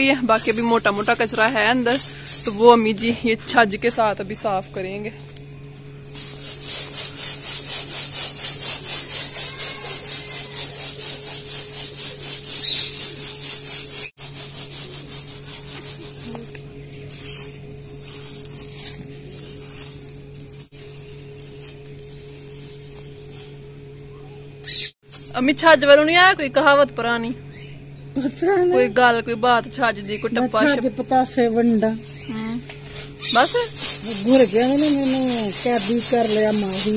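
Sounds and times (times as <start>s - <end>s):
seeds rasping in shaken basket: 0.0s - 3.1s, 6.2s - 23.8s, 33.2s - 36.9s.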